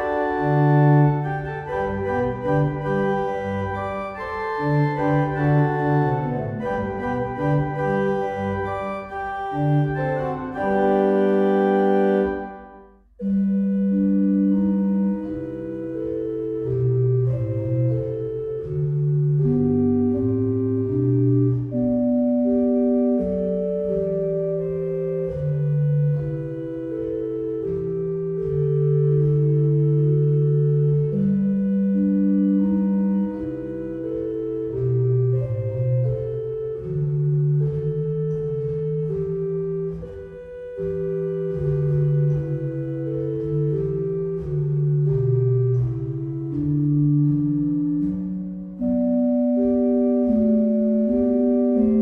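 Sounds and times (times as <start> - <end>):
electronic organ playing chords: 0.0 - 52.0.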